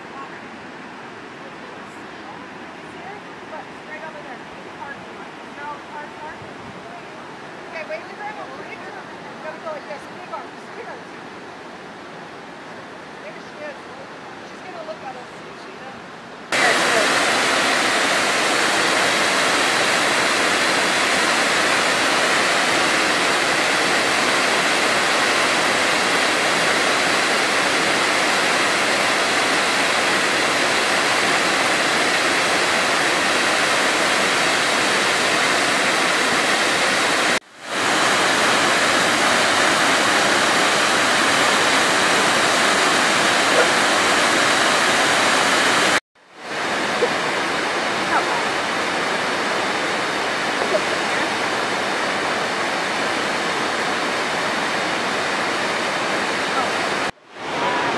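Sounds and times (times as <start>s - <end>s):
waterfall rushing: 0.0s - 15.2s, 16.5s - 57.9s.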